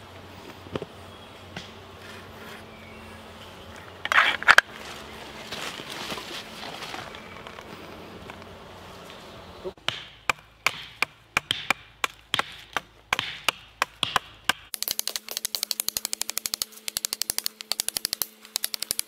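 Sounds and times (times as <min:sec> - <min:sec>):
gear and clothing rustling: 0:04.1 - 0:09.3.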